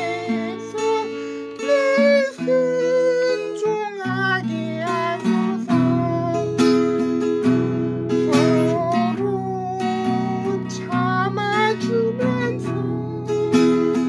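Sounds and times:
acoustic guitar strumming: 0:00.0 - 0:14.0.

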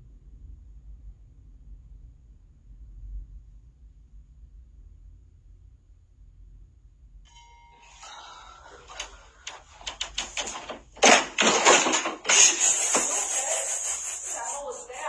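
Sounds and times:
clicks and scuffles: 0:08.9 - 0:13.1
loud crash and clatter: 0:09.5 - 0:13.5.

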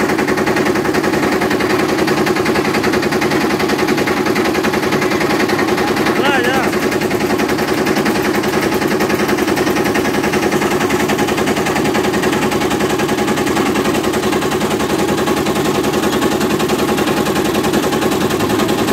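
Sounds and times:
diesel engine chugging: 0:00.0 - 0:18.9.

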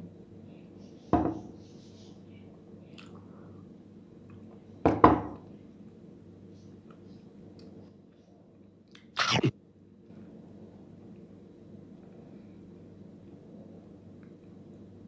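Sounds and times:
person chewing: 0:08.9 - 0:09.5
short sharp noise: 0:09.2 - 0:09.5.

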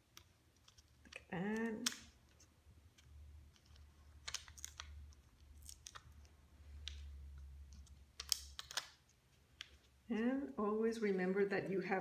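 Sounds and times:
plastic stickers clicking and crinkling: 0:00.0 - 0:10.4.

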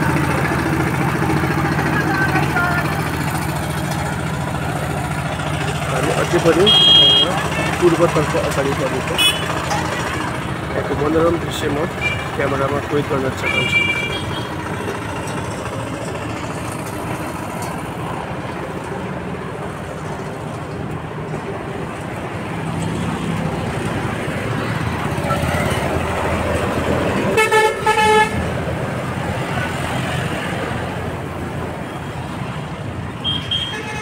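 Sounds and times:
road traffic noise: 0:00.0 - 0:34.0
car horn toots: 0:06.5 - 0:07.8, 0:09.1 - 0:10.0, 0:13.4 - 0:14.5, 0:27.4 - 0:28.4, 0:33.2 - 0:34.0.

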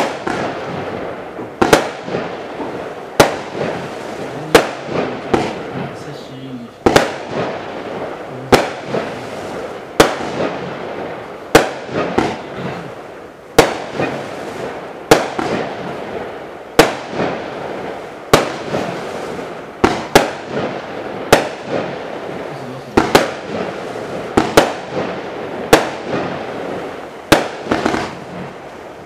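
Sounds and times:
small fireworks pops: 0:00.0 - 0:00.8, 0:01.4 - 0:03.8, 0:04.4 - 0:06.0, 0:06.8 - 0:07.5, 0:10.0 - 0:10.6, 0:11.5 - 0:12.9, 0:13.6 - 0:15.9, 0:16.8 - 0:17.4, 0:19.8 - 0:20.7, 0:21.3 - 0:21.9, 0:22.9 - 0:23.7, 0:24.3 - 0:26.3, 0:27.3 - 0:28.6
fireworks bangs: 0:00.0 - 0:29.0.

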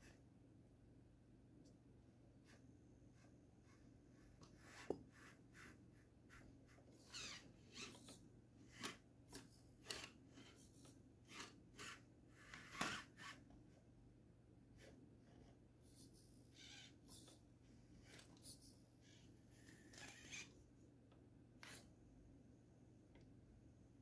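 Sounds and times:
small electric motor whirring: 0:07.0 - 0:09.0, 0:09.8 - 0:13.4, 0:19.0 - 0:20.5.

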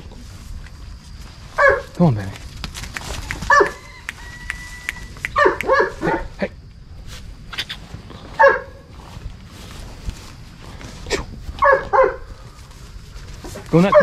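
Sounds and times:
dog barking: 0:01.6 - 0:01.9, 0:03.5 - 0:03.8, 0:05.3 - 0:06.4, 0:08.4 - 0:08.9, 0:11.6 - 0:12.3.

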